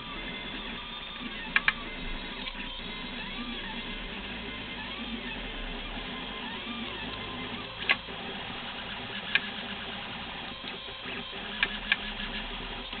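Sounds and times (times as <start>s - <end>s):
stepper motors whining: 0.0s - 13.0s
sharp clicks: 1.5s - 1.8s.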